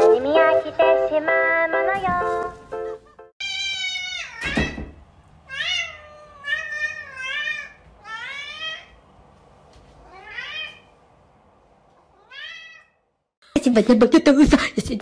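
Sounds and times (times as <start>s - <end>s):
cat meowing: 3.4s - 4.8s, 5.5s - 9.0s, 10.0s - 10.9s, 12.1s - 13.0s.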